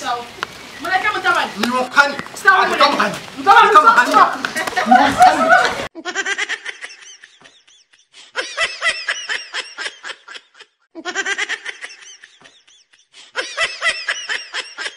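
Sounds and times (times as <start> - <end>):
recorded laughter: 4.4 - 14.9.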